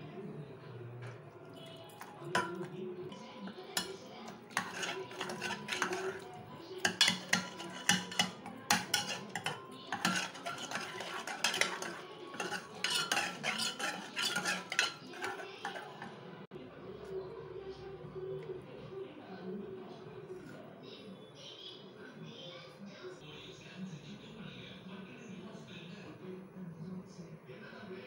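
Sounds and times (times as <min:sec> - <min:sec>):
ladle scraping metal pot: 0:01.6 - 0:02.7, 0:03.4 - 0:16.3.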